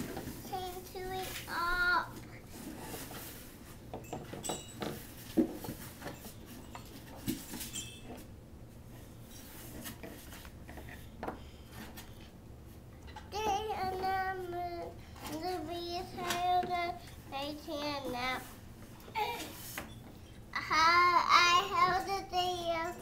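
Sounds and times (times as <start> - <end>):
child singing: 0.5 - 2.2, 13.3 - 18.5, 20.6 - 23.0.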